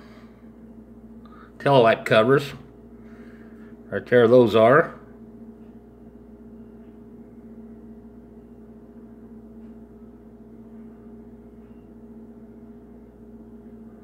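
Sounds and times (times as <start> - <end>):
low room drone: 0.0 - 14.0.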